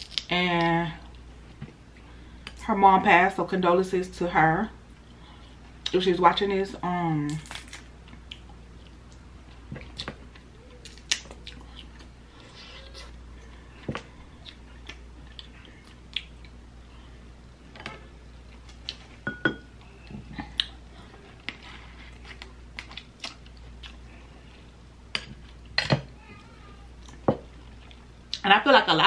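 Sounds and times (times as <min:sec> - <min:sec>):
chewing and mouth sounds: 0:08.0 - 0:16.6, 0:19.8 - 0:24.2.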